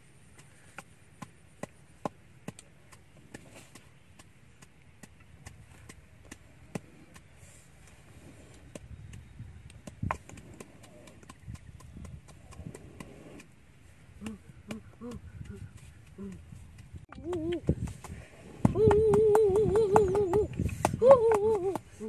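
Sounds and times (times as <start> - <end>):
sharp taps and knocks: 0.3 - 7.3, 8.7 - 13.5.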